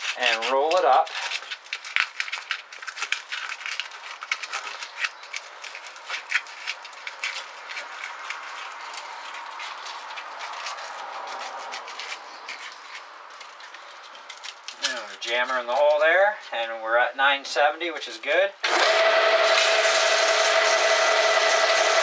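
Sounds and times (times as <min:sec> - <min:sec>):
sandpaper crinkling: 0:00.0 - 0:16.0.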